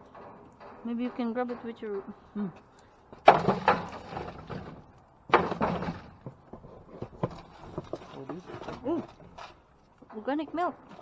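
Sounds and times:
pole knocking in a dumpster: 3.2 - 6.4.

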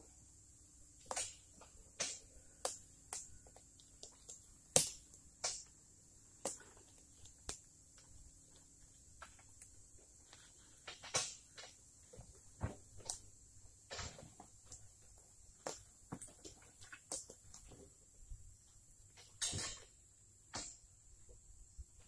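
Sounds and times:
faint low hum: 0.0 - 22.0
sharp snaps and crackles: 1.0 - 17.8.

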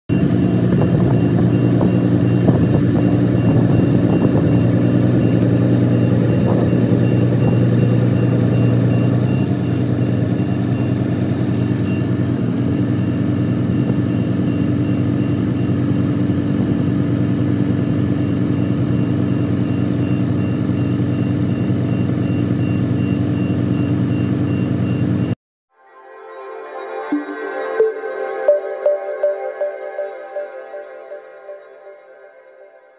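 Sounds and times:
vehicle engine idling: 0.1 - 25.4.

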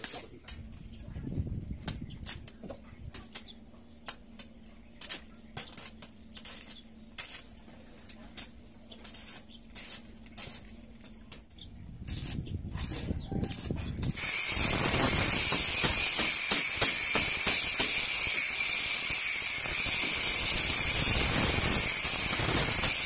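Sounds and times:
angle grinder cutting steel: 13.6 - 23.0.

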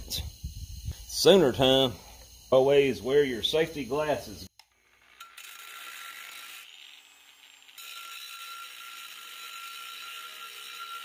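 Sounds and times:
power tool cutting steel: 2.5 - 11.0.

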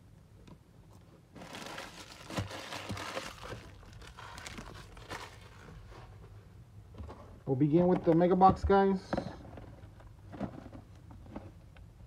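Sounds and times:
plastic packaging crinkling: 1.3 - 5.9.

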